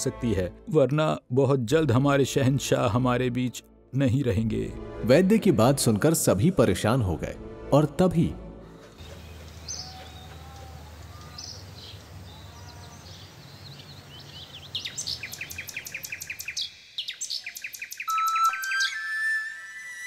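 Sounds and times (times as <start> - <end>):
steady outdoor hum: 8.7 - 16.8
bird chirping trill: 8.8 - 20.0
flute music: 18.1 - 20.0
whistled held notes: 18.1 - 20.0.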